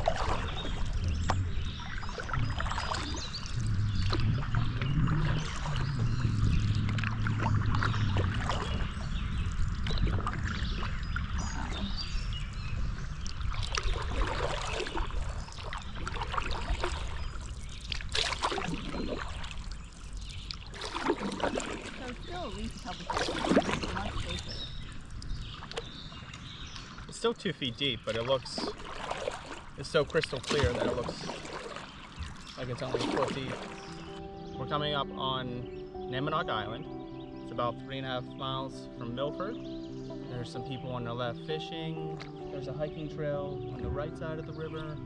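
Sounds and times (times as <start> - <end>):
steady low rumble: 0.0 - 14.4
canoe paddles splashing water: 0.0 - 45.0
water dripping off paddles: 0.0 - 45.0.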